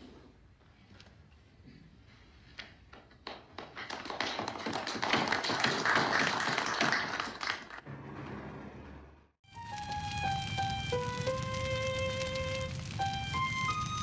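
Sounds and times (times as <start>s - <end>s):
men applauding: 3.2s - 7.8s.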